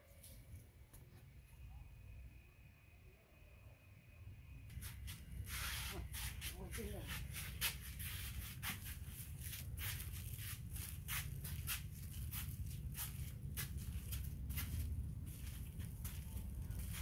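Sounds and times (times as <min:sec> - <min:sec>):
steady low rumble: 0:04.4 - 0:17.0
footsteps on concrete and dirt: 0:04.7 - 0:17.0.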